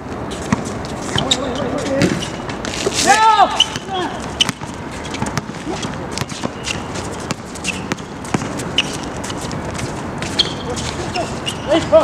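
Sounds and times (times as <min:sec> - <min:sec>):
shoe squeaks: 0:00.2 - 0:12.0
basketball bouncing on hard court: 0:03.6 - 0:09.2.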